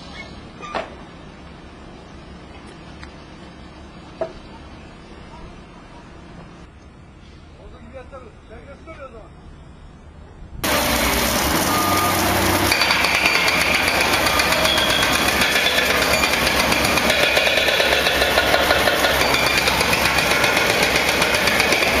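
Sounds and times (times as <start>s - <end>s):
heavy machinery knocking rapidly: 10.6s - 22.0s.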